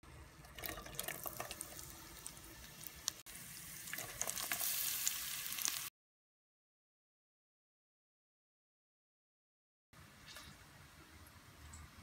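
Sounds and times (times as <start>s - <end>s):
oil crackling in a pan: 0.3s - 5.9s
onion sizzling in hot oil: 0.5s - 5.9s.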